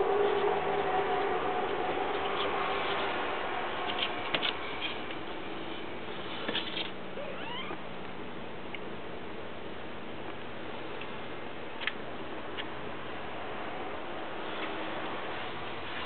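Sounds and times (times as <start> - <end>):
kitten mewing: 7.2 - 7.8.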